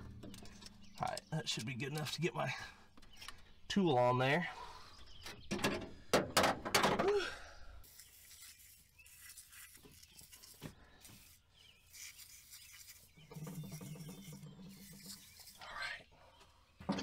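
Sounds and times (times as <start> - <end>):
aerosol spray can hissing: 7.9 - 15.6.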